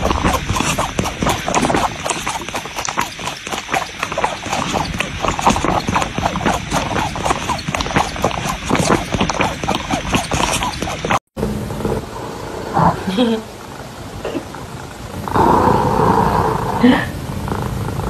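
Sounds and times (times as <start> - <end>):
cat suckling clicks: 0.0 - 11.2.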